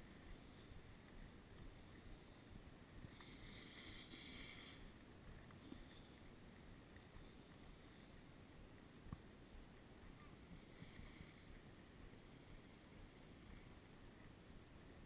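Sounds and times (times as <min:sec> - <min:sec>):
skis sliding over snow: 0:00.0 - 0:08.4, 0:10.2 - 0:13.7.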